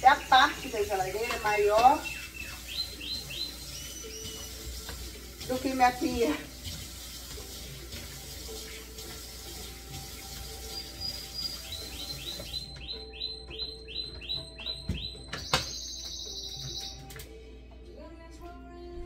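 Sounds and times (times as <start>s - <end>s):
high chirps: 0.0s - 4.7s, 10.6s - 17.1s
faucet water running into sink: 0.0s - 12.6s.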